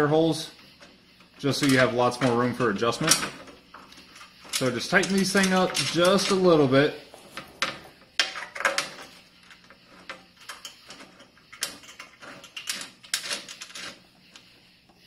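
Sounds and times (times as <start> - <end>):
metal bolts clicking and tapping: 3.0 - 6.5.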